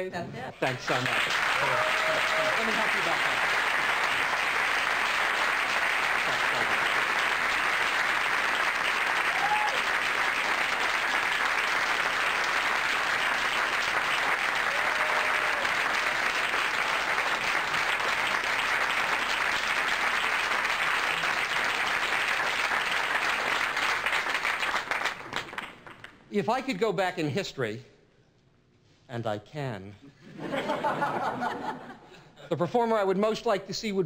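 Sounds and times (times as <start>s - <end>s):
audience applauding: 0.6s - 26.2s.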